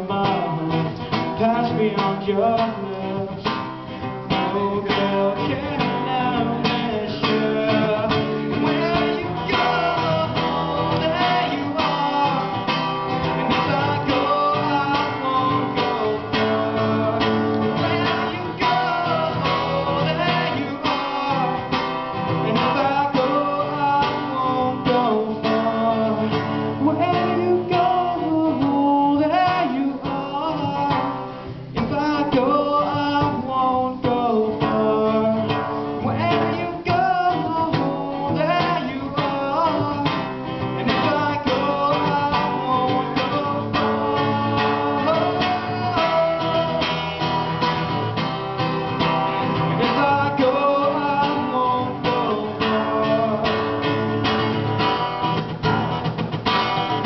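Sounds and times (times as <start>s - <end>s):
man singing: 0.0s - 48.2s, 48.8s - 54.6s
acoustic guitar strumming: 0.0s - 57.0s.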